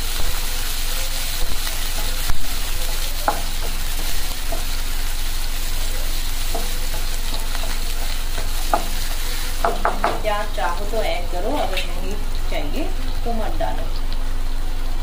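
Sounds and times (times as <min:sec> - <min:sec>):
onions sizzling in hot oil: 0:00.0 - 0:15.0
spatula scraping and knocking pan: 0:01.3 - 0:10.6.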